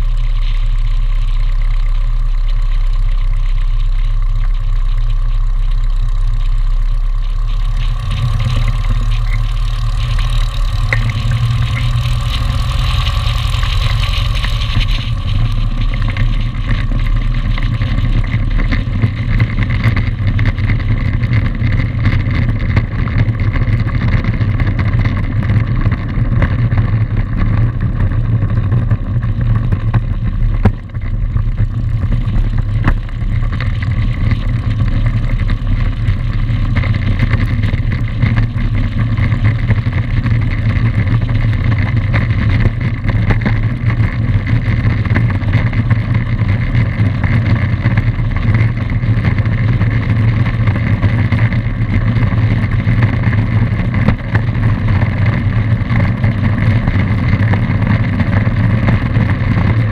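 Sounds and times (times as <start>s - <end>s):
light aircraft engine droning: 0.0s - 59.9s.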